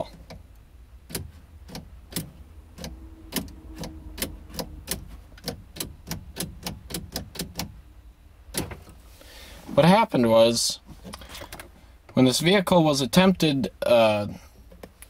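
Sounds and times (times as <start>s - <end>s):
ignition clicking: 0.1s - 7.8s.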